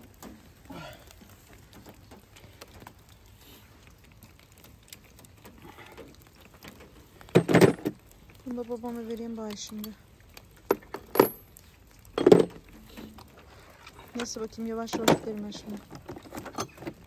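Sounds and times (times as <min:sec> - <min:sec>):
light rain pattering: 0:00.0 - 0:17.0
metallic clatter of tools: 0:14.1 - 0:17.0.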